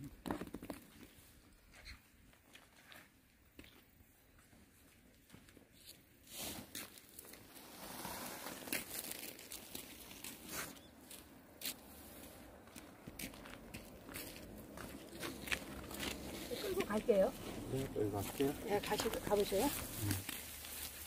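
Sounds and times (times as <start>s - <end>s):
net rustling and crinkling: 6.8s - 10.9s, 15.2s - 21.0s.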